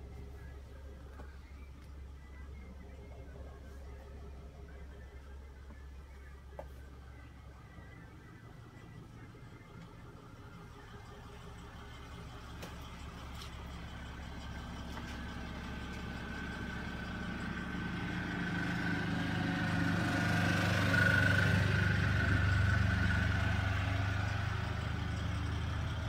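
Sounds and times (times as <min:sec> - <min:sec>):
diesel engine idling: 0:00.0 - 0:26.0.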